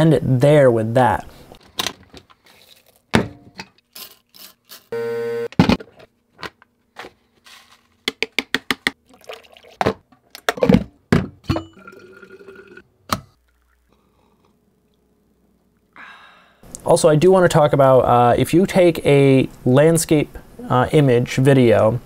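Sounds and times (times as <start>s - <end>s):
liquid pouring: 2.5s - 3.1s, 9.0s - 9.9s, 11.8s - 12.8s, 13.4s - 14.4s.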